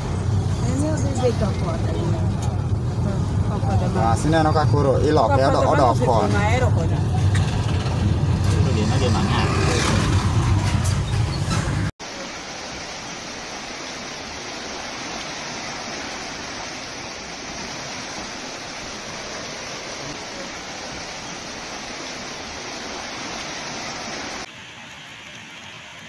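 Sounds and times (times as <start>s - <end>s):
floodwater rushing across road: 0.0s - 11.0s, 12.0s - 26.0s.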